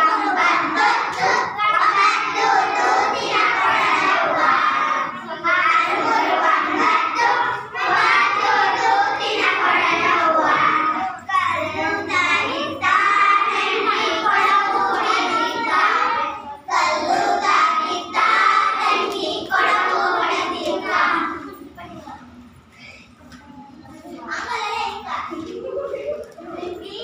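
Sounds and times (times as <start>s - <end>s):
children singing: 0.0s - 21.6s.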